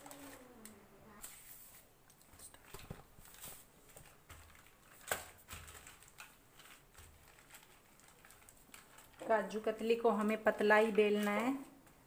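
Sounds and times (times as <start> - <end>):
rolling pin rustling and clicking: 2.1 - 9.3.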